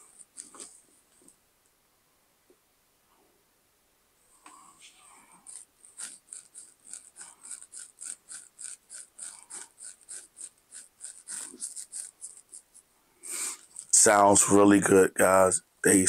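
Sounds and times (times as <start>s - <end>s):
hi-hat-like ticks: 5.5s - 12.8s.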